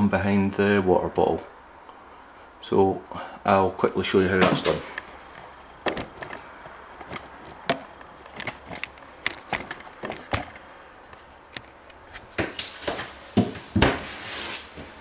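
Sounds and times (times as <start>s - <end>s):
light handling clicks and knocks: 4.4s - 13.5s.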